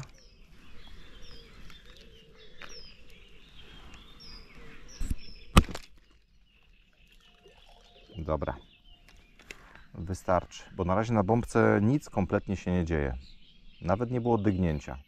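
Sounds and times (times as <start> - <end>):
small birds chirping: 0.0 - 15.0
catapult snaps: 5.5 - 5.9.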